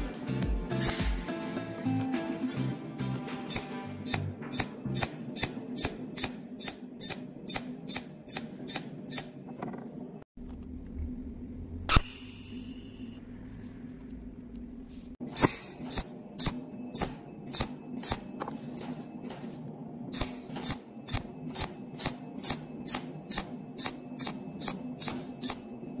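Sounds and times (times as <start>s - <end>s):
spot welder snapping: 0.8s - 1.1s, 3.5s - 9.3s
steady low hum: 4.0s - 26.0s.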